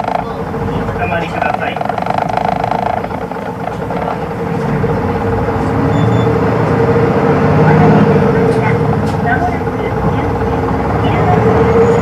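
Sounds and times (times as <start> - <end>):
steady whine: 0.0 - 6.1
bus diesel engine running: 0.0 - 12.0.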